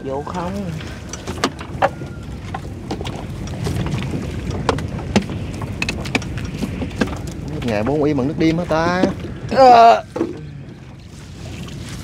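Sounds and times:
boat engine rumble: 0:00.0 - 0:12.0
wind buffeting microphone: 0:00.0 - 0:12.0
sharp knocks and clicks: 0:01.1 - 0:07.9.

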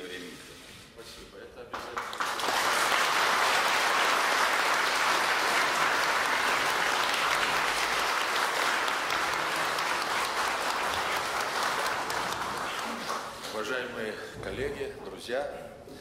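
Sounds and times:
audience applauding: 0:01.7 - 0:13.9.

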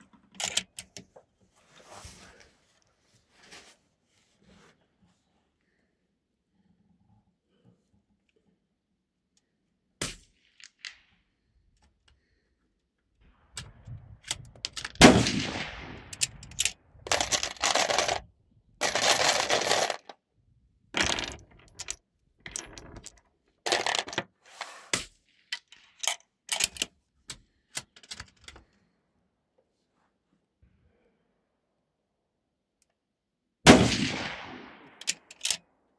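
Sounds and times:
rifle shot echoing: 0:15.0 - 0:16.2, 0:33.7 - 0:35.0
metallic clinks and rattles: 0:16.2 - 0:18.2, 0:18.8 - 0:20.1, 0:21.0 - 0:24.2.

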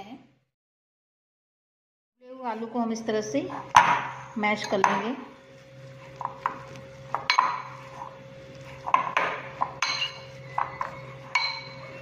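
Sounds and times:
potato masher clinking on glass bowl: 0:06.2 - 0:07.8, 0:08.9 - 0:12.0.

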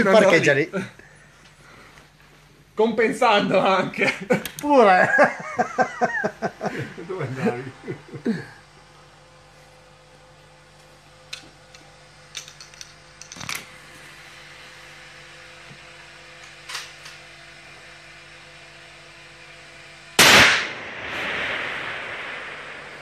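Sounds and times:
rifle shot with echo: 0:20.2 - 0:23.0.

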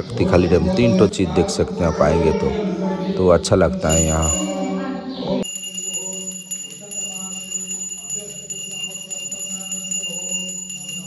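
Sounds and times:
faint wavering melody: 0:03.8 - 0:11.0
sustained bell-like ringing: 0:03.9 - 0:11.0.

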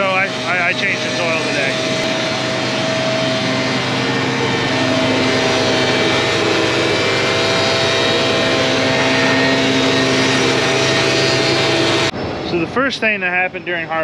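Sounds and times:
leaf blower running: 0:00.0 - 0:12.1.

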